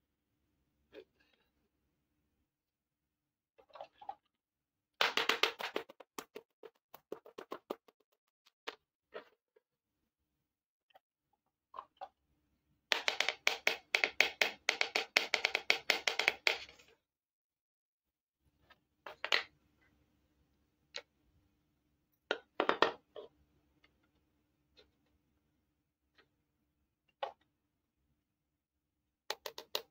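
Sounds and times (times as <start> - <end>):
plastic pieces clacking on board: 5.0 - 8.8, 12.9 - 16.8.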